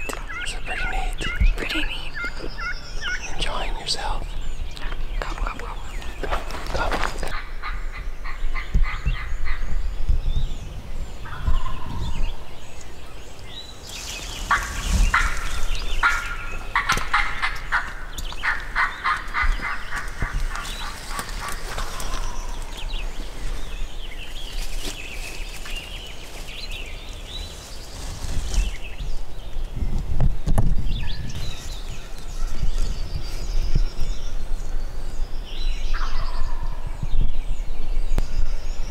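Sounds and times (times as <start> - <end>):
songbirds chirping: 0.0 - 38.9
turkey gobbling: 14.5 - 22.0.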